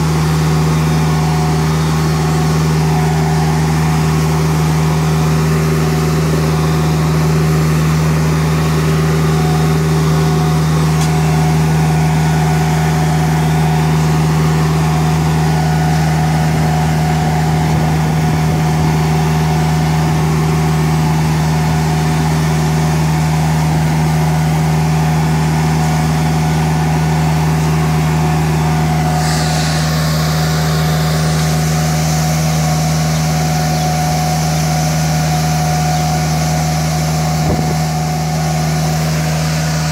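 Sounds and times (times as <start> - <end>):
floor scrubber humming: 0.0 - 39.9
higher hiss: 29.0 - 32.9.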